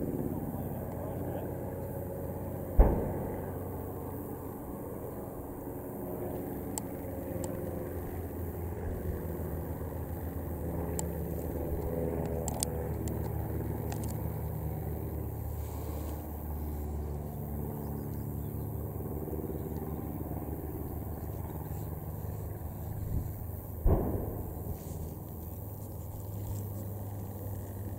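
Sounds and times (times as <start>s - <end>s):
distant biplanes droning: 0.0s - 27.9s.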